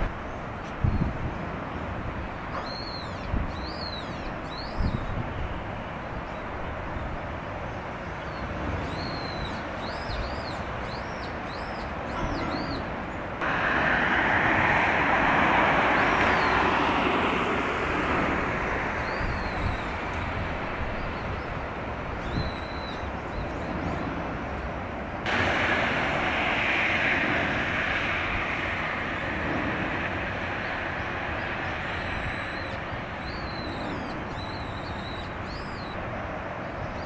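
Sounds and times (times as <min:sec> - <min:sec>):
steady background hiss: 0:12.8 - 0:23.3, 0:24.4 - 0:37.0.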